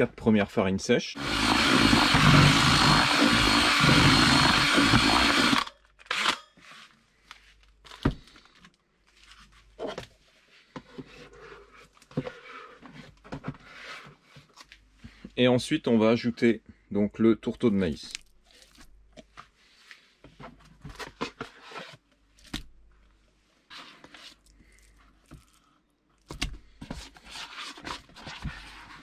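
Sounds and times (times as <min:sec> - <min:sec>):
electric drill mixing dry bait: 0:01.2 - 0:06.4.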